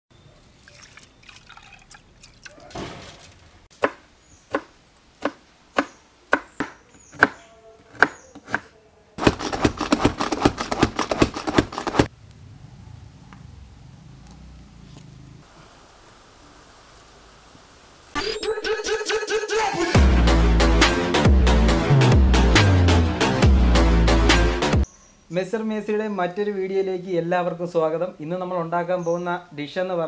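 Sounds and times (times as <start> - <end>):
knife chopping on wooden board: 3.8 - 12.1.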